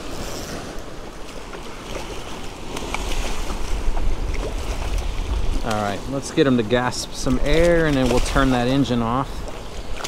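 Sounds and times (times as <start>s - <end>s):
water lapping: 0.0s - 10.0s
wind buffeting microphone: 0.0s - 10.0s.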